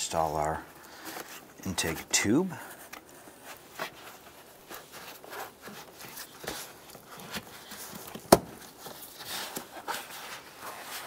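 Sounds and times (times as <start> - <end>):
rubber tube rubbing and rustling: 0.0 - 11.0.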